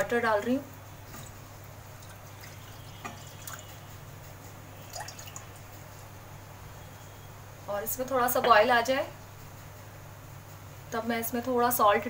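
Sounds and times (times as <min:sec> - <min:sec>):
water drips and light taps: 0:01.0 - 0:04.0, 0:04.8 - 0:05.8.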